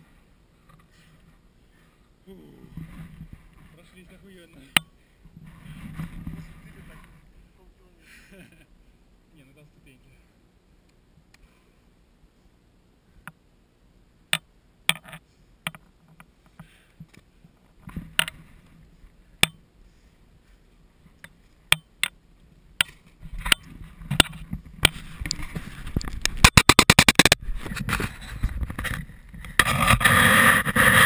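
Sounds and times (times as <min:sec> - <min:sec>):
rubbing handling noise: 0:00.0 - 0:07.3, 0:22.8 - 0:31.0.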